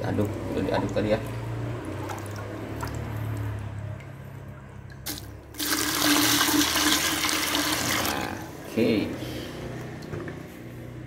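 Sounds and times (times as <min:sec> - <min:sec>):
liquid gushing into bucket: 0:05.0 - 0:08.4.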